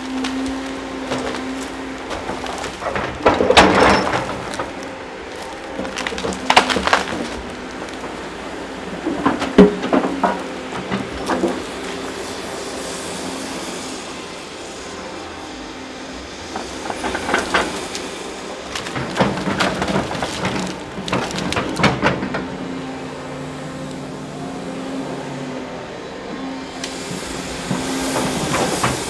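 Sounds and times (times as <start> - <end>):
diesel engine running: 0.0 - 29.0
metal clanking and knocking: 1.0 - 8.2, 8.9 - 11.7, 18.8 - 22.6.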